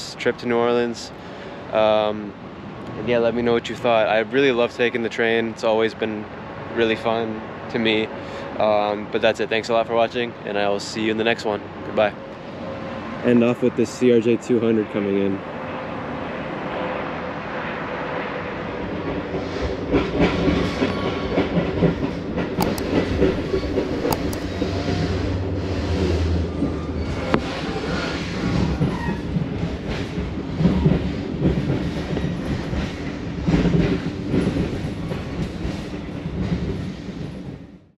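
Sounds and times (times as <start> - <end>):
train wheel rumble: 1.9 - 37.9
sharp clicks: 22.6 - 24.5.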